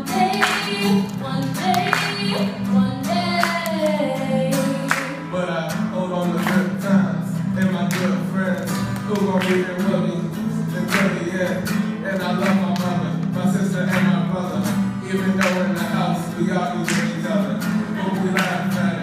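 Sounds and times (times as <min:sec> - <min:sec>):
woman singing: 0:00.0 - 0:05.3
acoustic guitar strumming: 0:00.0 - 0:19.0.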